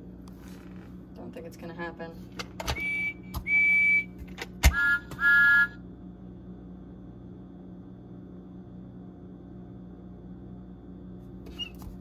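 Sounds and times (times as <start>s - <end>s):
toy train electronic whistle: 2.7s - 5.8s.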